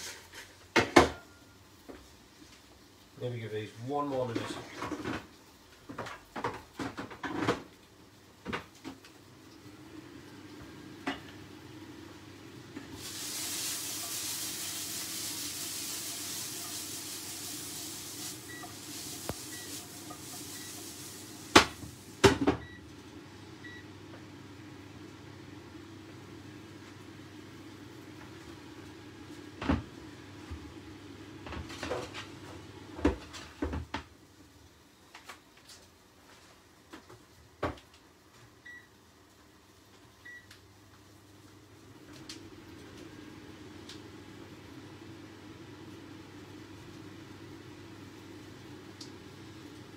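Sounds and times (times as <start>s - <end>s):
vegetables sizzling in a frying pan: 5.2s - 22.4s.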